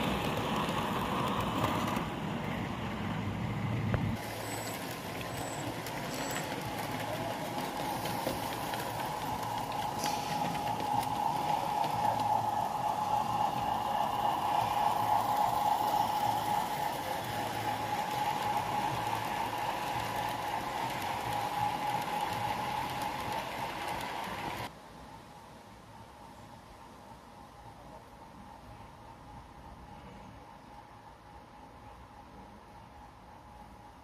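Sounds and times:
model train wheels clattering: 0:00.0 - 0:02.3, 0:04.0 - 0:24.7
constant hum: 0:00.0 - 0:34.0.

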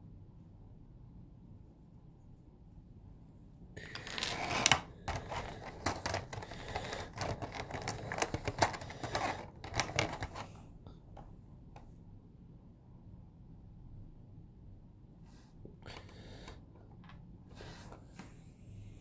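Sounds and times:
plastic parts clicking and rustling: 0:03.8 - 0:11.3.

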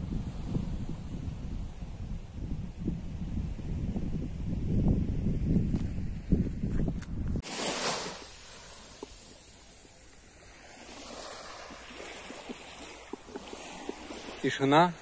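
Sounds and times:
wind buffeting microphone: 0:00.0 - 0:07.5
small waves washing on shore: 0:07.4 - 0:15.0.

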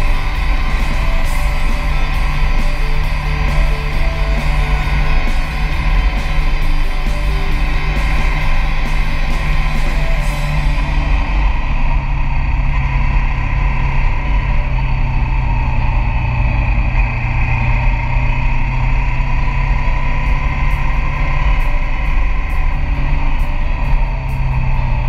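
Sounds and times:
rock music with guitar and drums: 0:00.0 - 0:12.2, 0:20.1 - 0:25.0
motorcycle running: 0:00.0 - 0:25.0.

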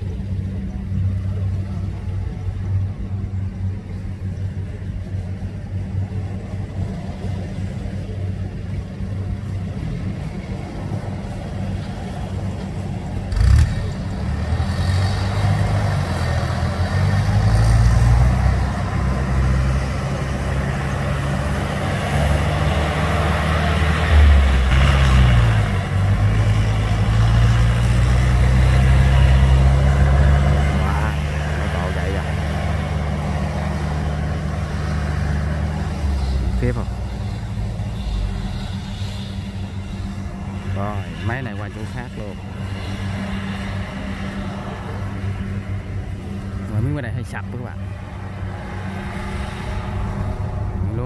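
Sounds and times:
harvester diesel engine running: 0:00.0 - 0:51.0.

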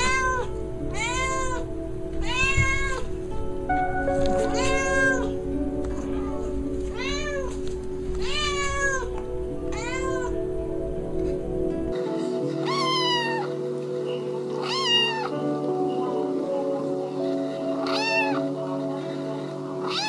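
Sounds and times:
cat meowing: 0:00.0 - 0:03.1, 0:04.4 - 0:05.4, 0:06.9 - 0:07.5, 0:08.2 - 0:09.1, 0:09.7 - 0:10.4, 0:12.6 - 0:13.6, 0:14.6 - 0:15.4, 0:17.8 - 0:18.5, 0:19.8 - 0:20.0
background music with sustained notes: 0:00.0 - 0:20.0.

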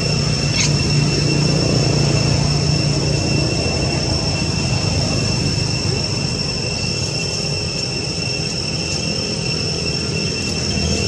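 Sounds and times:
insects droning: 0:00.0 - 0:11.0.

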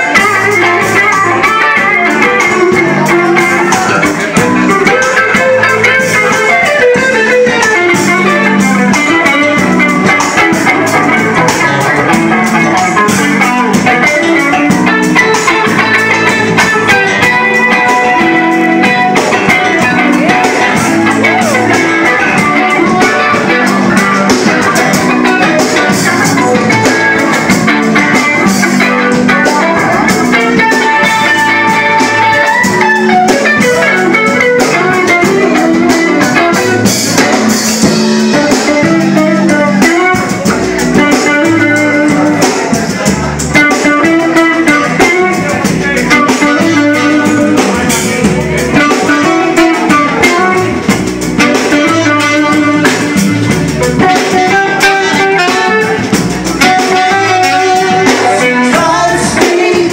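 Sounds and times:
drum kit: 0:00.0 - 0:59.9
electric guitar: 0:00.0 - 0:59.9.

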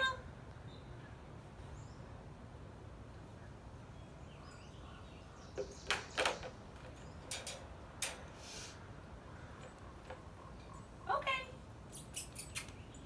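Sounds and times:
wire crate rattling and clinking: 0:05.7 - 0:08.4.

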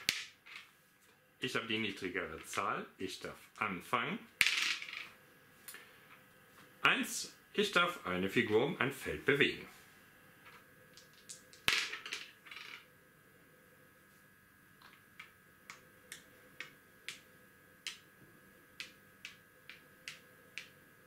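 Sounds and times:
dice clacking on wooden board: 0:00.0 - 0:00.6, 0:11.0 - 0:12.8, 0:18.8 - 0:20.8.

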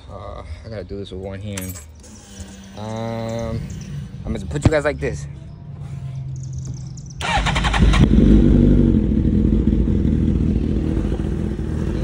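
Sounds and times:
motorcycle electric starter: 0:07.2 - 0:08.2
motorcycle engine idling: 0:07.2 - 0:12.0.

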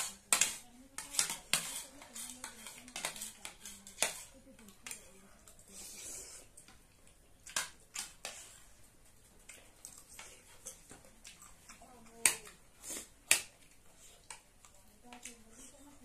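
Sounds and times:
cutlery clicking and scraping on plates: 0:00.0 - 0:05.1.

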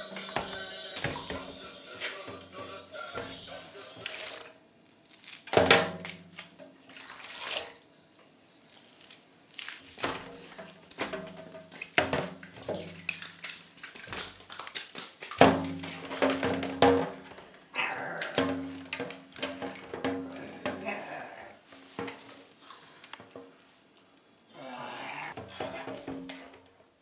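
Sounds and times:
hands splashing in slimy water: 0:11.7 - 0:15.7.

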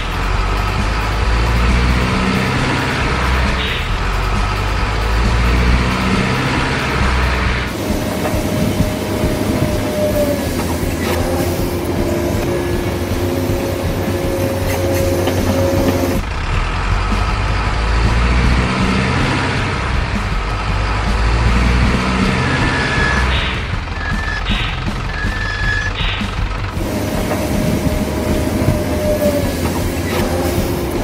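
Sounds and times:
heavy truck engine running: 0:00.0 - 0:31.0.

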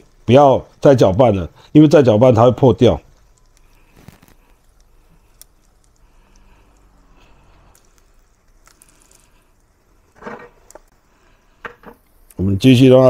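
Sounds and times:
egg sizzling in oil: 0:00.0 - 0:12.5.

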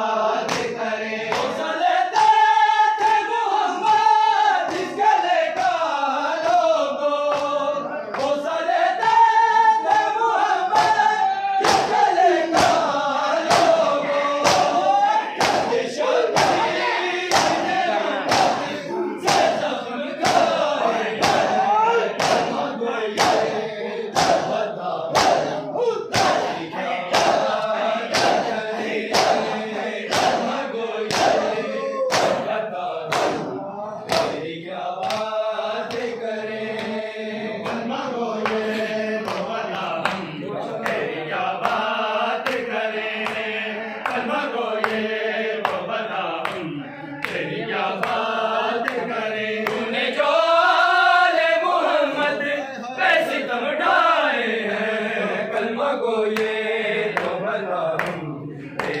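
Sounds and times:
men chanting in unison: 0:00.0 - 0:59.0
hands slapping chests: 0:00.4 - 0:03.3, 0:04.7 - 0:08.4, 0:09.0 - 0:37.0, 0:37.6 - 0:49.9, 0:56.3 - 0:57.4, 0:58.0 - 0:59.0.

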